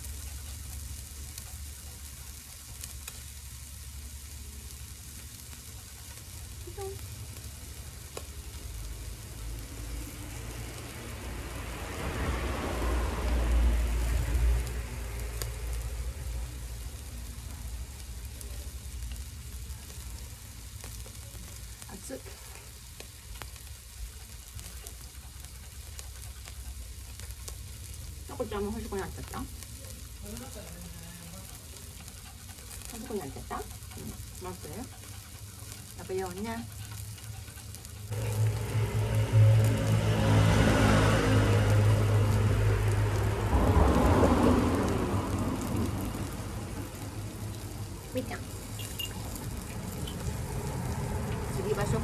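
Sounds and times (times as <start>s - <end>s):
beef sizzling on a grill: 0.0s - 52.0s
low hum: 37.2s - 52.0s.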